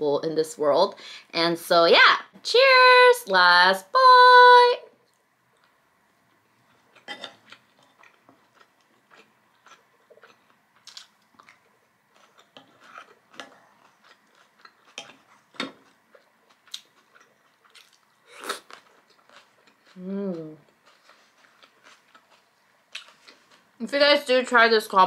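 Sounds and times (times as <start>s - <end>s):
chewing and wet mouth sounds: 5.0s - 23.8s.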